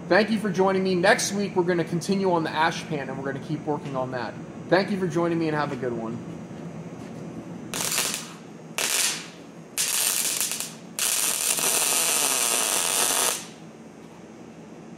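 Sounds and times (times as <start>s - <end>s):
welder arc crackling: 7.7s - 13.6s.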